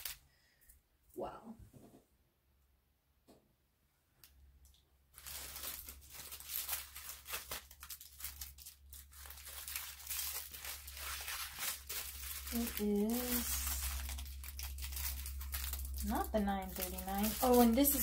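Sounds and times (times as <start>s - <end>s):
plastic bags crinkling: 0.0s - 0.2s, 5.1s - 18.0s.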